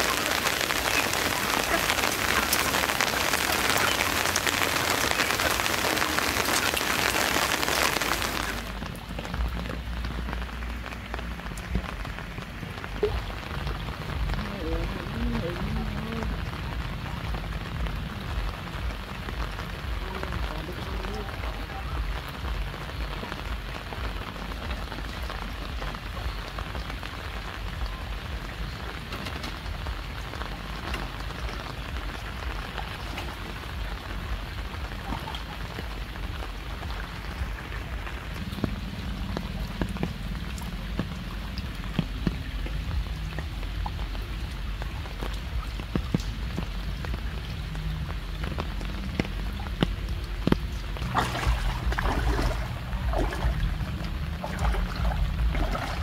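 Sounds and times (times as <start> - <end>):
steady rain: 0.0 - 56.0
water drips: 0.0 - 56.0.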